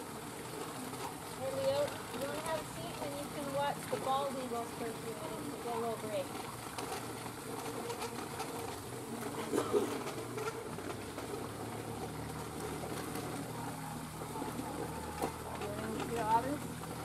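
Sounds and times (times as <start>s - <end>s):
low steady hum: 0.0s - 17.0s
outdoor background noise: 0.0s - 17.0s
faint distant voices: 11.7s - 17.0s.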